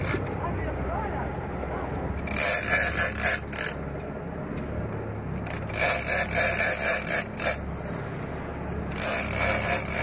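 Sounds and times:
boat engine drone: 0.0s - 10.0s
fishing reel cranking: 2.2s - 3.8s, 5.4s - 7.6s, 8.9s - 10.0s.

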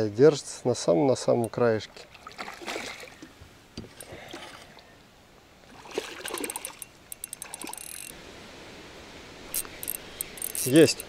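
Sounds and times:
water splash: 1.9s - 3.3s, 5.6s - 7.9s
water running over riffle: 5.6s - 8.2s
fast faint high clicking: 6.3s - 8.1s, 9.5s - 11.0s.

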